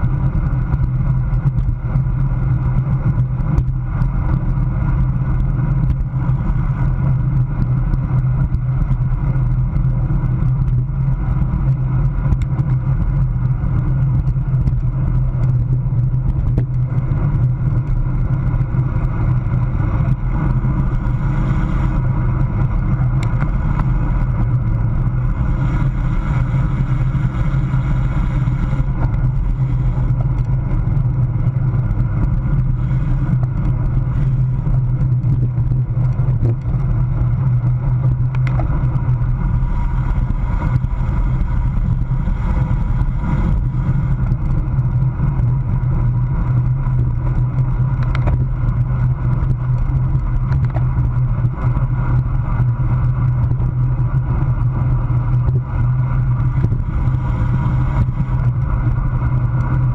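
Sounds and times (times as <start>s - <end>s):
bicycle tyres on road: 0.0s - 59.9s
wind rush: 0.0s - 59.9s.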